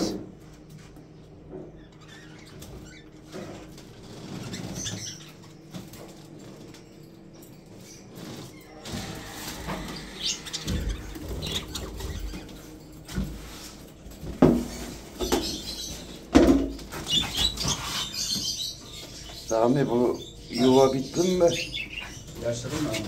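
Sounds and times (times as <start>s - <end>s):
cages knocking and rustling: 0.0s - 19.6s, 20.2s - 23.0s
budgerigars chirping: 1.8s - 5.6s, 8.7s - 12.7s, 14.7s - 23.0s.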